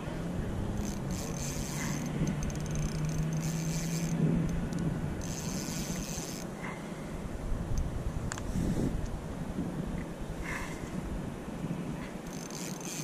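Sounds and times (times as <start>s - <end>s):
fishing reel whirring and clicking: 0.6s - 6.6s, 12.1s - 13.0s.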